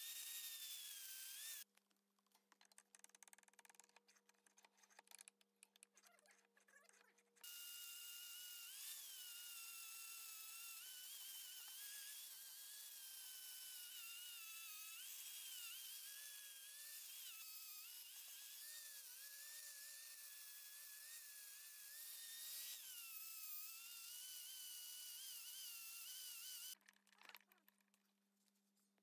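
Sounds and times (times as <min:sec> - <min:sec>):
angle grinder grinding metal: 0:00.0 - 0:01.6, 0:07.4 - 0:26.8.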